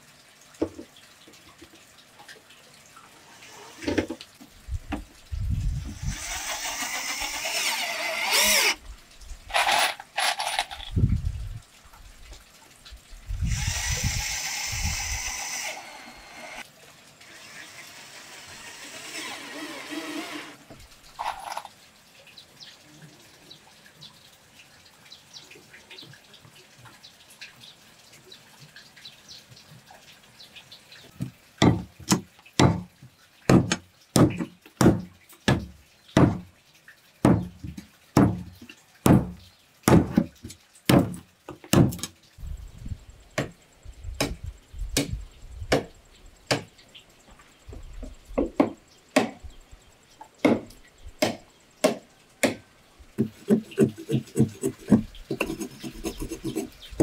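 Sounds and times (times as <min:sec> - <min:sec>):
machete chopping wood: 0:31.6 - 0:32.9, 0:33.5 - 0:36.5, 0:37.2 - 0:37.5, 0:38.2 - 0:38.5, 0:39.1 - 0:40.3, 0:40.9 - 0:42.1, 0:44.2 - 0:44.4, 0:49.2 - 0:49.4, 0:50.4 - 0:52.6.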